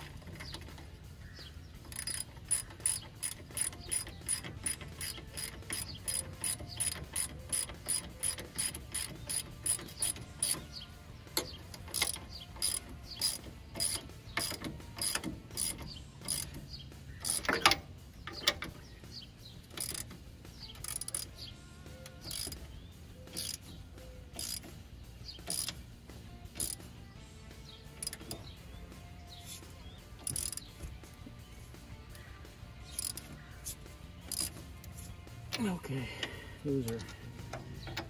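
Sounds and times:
ratchet wrench clicking: 0:01.8 - 0:18.8, 0:19.6 - 0:24.8, 0:25.4 - 0:25.8, 0:26.4 - 0:26.9, 0:27.9 - 0:28.5, 0:29.3 - 0:31.0, 0:32.1 - 0:35.3.

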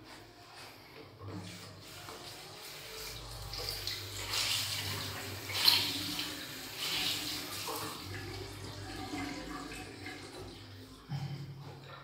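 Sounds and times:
cloth rinsed splashing: 0:01.3 - 0:11.0
sink tap running: 0:01.8 - 0:10.7.

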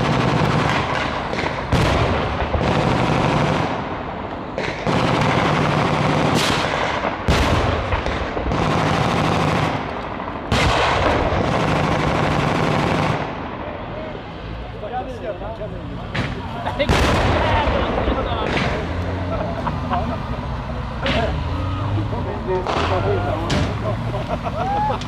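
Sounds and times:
machine guns firing bursts: 0:00.0 - 0:03.9, 0:04.6 - 0:13.4.

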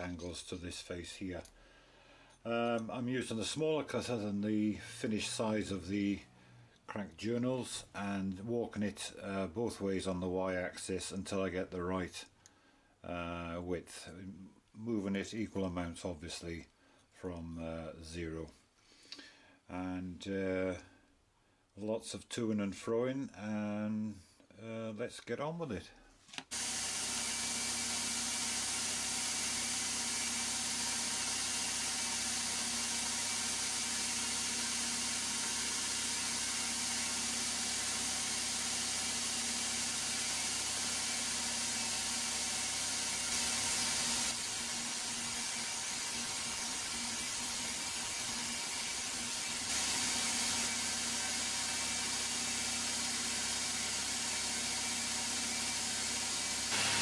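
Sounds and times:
milling machine cutting metal: 0:26.5 - 0:57.0.

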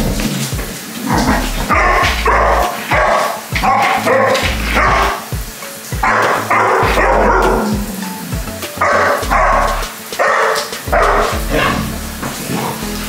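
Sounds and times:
background music with bass: 0:00.0 - 0:13.0
puppy barking and yipping: 0:01.2 - 0:05.3, 0:06.0 - 0:07.7, 0:08.8 - 0:11.8.

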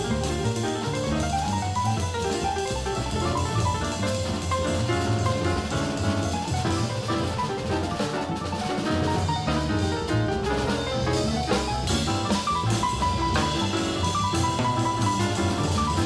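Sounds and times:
drum kit and cymbals: 0:00.0 - 0:16.0
small-group jazz: 0:00.0 - 0:16.0.

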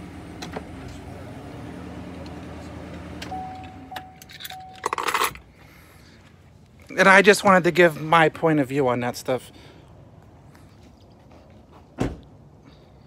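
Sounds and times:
pickup engine humming: 0:00.0 - 0:05.8
keys jingling: 0:03.6 - 0:05.4.

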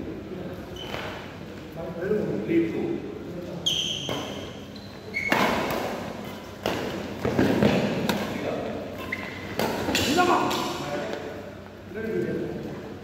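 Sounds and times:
racket hitting shuttlecock: 0:05.2 - 0:08.4, 0:09.0 - 0:10.7.

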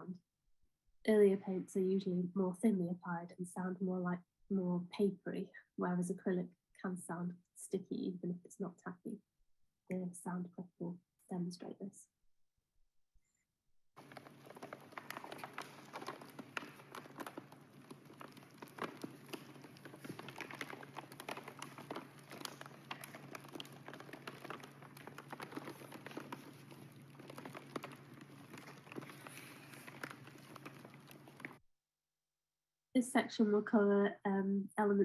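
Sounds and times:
paint crackling on rolled banner: 0:14.0 - 0:31.6.

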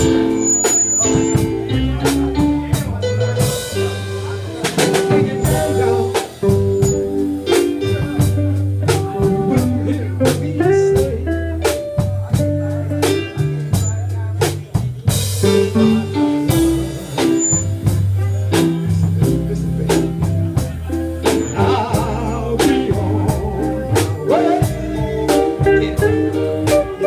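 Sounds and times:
drum beat: 0:00.0 - 0:27.0
electric guitar: 0:00.0 - 0:27.0
keyboard: 0:00.0 - 0:27.0
low bass notes: 0:00.0 - 0:27.0
man singing into a microphone: 0:04.2 - 0:07.0, 0:08.9 - 0:11.6, 0:21.2 - 0:27.0.

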